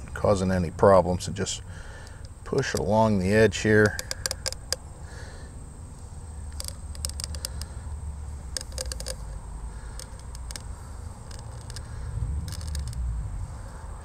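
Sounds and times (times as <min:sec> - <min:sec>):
low steady rumble: 0:00.0 - 0:14.0
metal pick scraping and clicking: 0:03.8 - 0:04.8, 0:06.5 - 0:07.7, 0:08.5 - 0:13.0.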